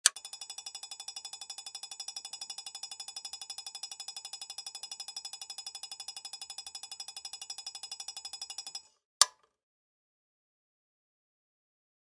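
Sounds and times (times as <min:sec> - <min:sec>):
strobe light clicking: 0:00.0 - 0:09.4
high electronic ringing buzz: 0:00.1 - 0:08.9.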